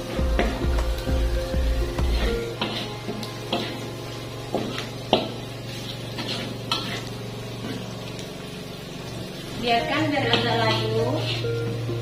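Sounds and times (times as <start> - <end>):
oil sizzling: 0.0 - 12.0
metal spatula scraping a wok: 1.8 - 7.8, 10.3 - 11.6.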